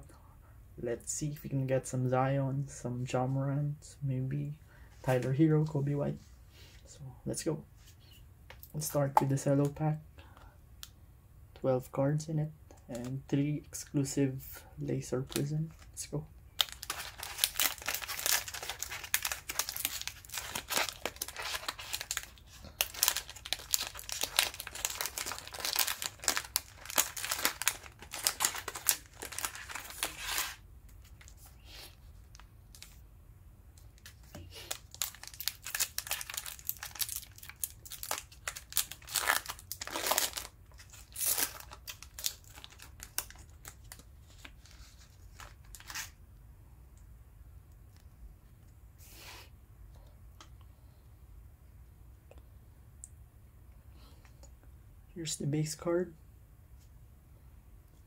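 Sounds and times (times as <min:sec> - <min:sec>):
plastic wrapper tearing and crinkling: 0:16.6 - 0:31.5, 0:33.8 - 0:46.2.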